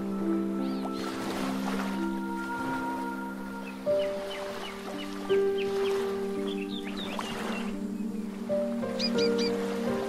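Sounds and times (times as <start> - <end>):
calm music with held notes: 0.0 - 10.0.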